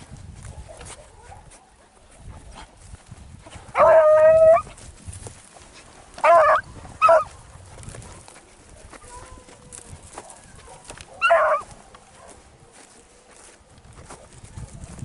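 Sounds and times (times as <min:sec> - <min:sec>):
dog barking: 0:00.5 - 0:01.8, 0:03.8 - 0:04.6, 0:06.2 - 0:07.3, 0:10.2 - 0:12.8
dog baying: 0:03.8 - 0:04.7, 0:06.2 - 0:07.3, 0:09.0 - 0:12.4.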